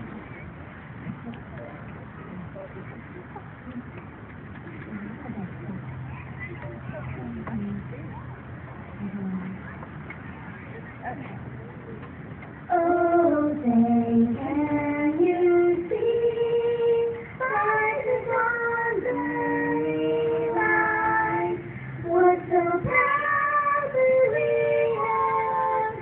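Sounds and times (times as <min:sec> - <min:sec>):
women singing in harmony: 0:12.7 - 0:26.0.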